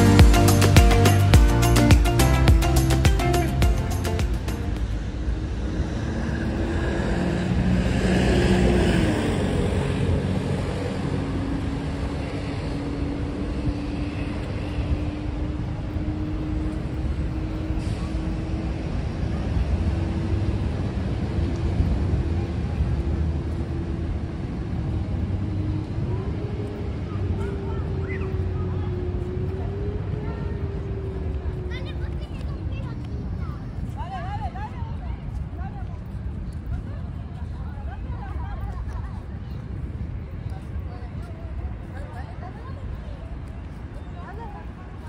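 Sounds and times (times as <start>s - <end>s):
vehicle passing: 0.0s - 33.4s
traffic rumble: 0.0s - 45.0s.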